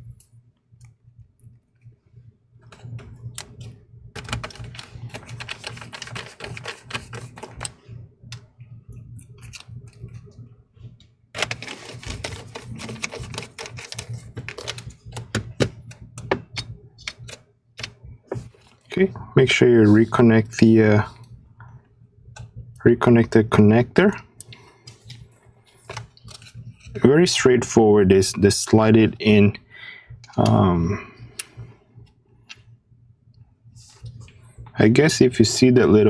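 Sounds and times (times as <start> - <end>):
low steady hum: 0.0 - 36.0.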